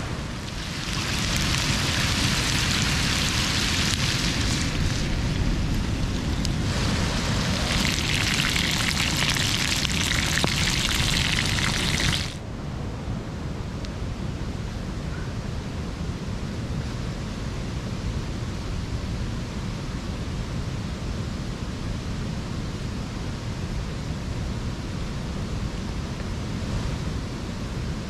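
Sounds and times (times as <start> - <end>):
lake waves: 0.0 - 12.4
wind rumble on microphone: 0.0 - 28.0.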